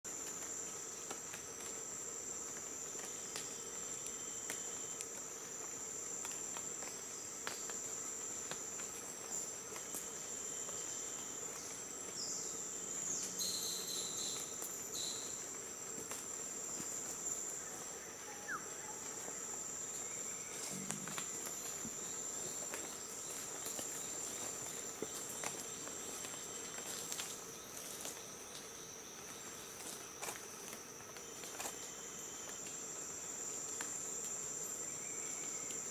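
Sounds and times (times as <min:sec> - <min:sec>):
high-pitched insect drone: 0:09.3 - 0:35.9.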